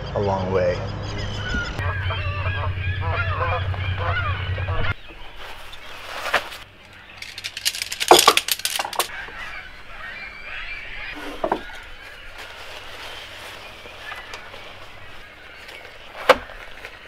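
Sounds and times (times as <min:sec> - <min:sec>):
tent poles clicking together: 0:06.2 - 0:09.1.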